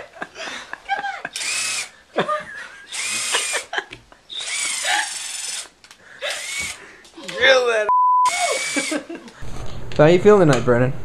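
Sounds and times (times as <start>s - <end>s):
cordless drill motor whine: 1.4s - 1.9s, 2.9s - 3.6s, 4.3s - 5.7s, 6.3s - 6.8s, 8.3s - 9.0s.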